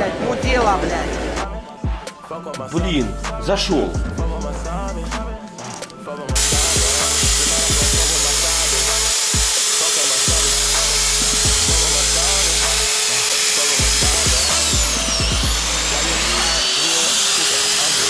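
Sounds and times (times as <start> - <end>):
background music with bass: 0.0 - 18.0
power drill whining: 5.4 - 18.0.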